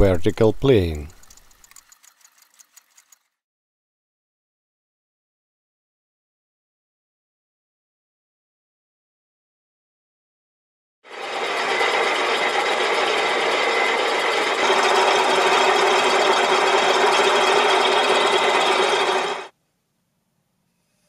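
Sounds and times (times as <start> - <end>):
milling machine cutting: 11.1 - 19.5.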